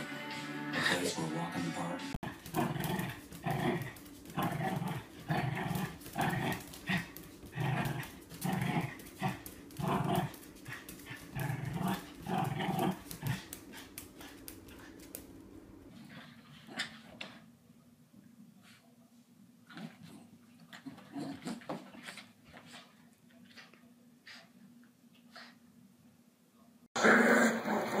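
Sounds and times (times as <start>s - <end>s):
small dog growling: 2.2s - 15.1s, 27.0s - 28.0s.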